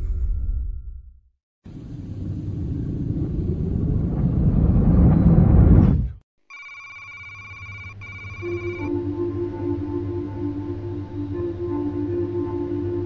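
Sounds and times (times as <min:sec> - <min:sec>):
electronic ringing tone: 0:06.5 - 0:08.9.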